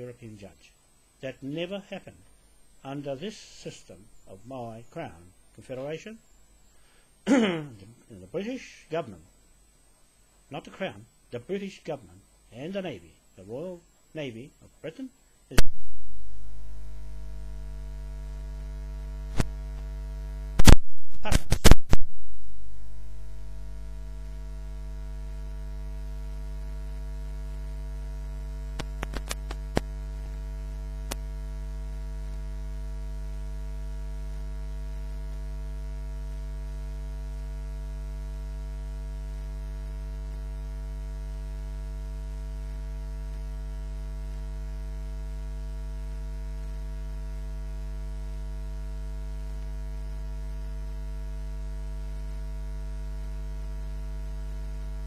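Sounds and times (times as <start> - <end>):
electrical mains hum: 0.0 - 55.0
small clicks: 28.8 - 29.9.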